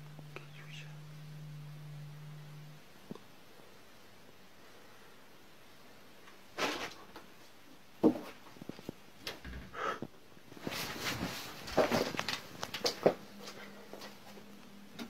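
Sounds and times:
rustling: 0:10.4 - 0:15.0.

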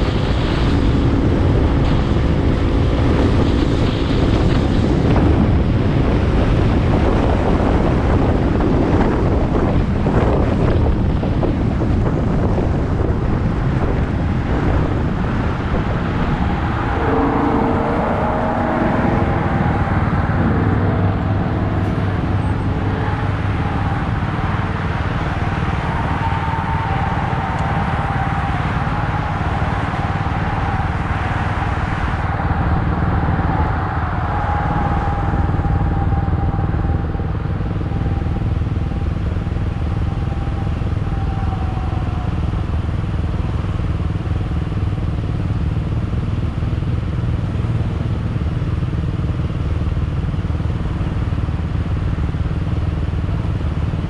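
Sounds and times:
vehicle engine rumble: 0:00.0 - 0:54.0
thin whine: 0:13.9 - 0:44.9.

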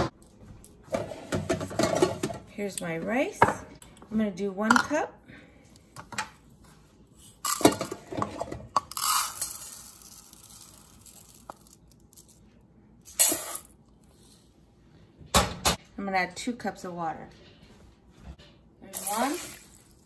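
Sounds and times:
rice rattling: 0:08.9 - 0:11.8.

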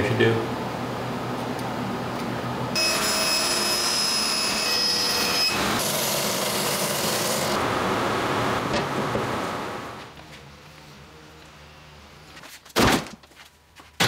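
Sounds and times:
band saw cutting plywood: 0:02.8 - 0:10.5.

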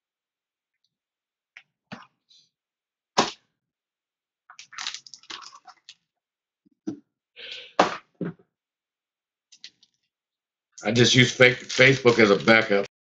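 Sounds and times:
foil wrappers crinkling: 0:04.6 - 0:05.7, 0:11.1 - 0:12.8.

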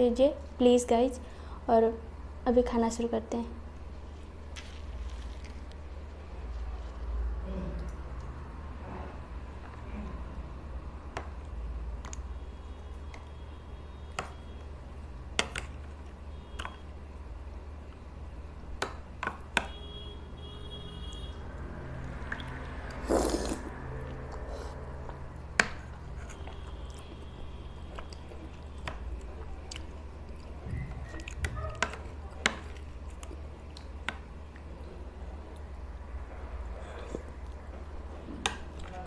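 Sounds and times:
chewing and mouth sounds: 0:22.0 - 0:25.2, 0:26.1 - 0:34.7.

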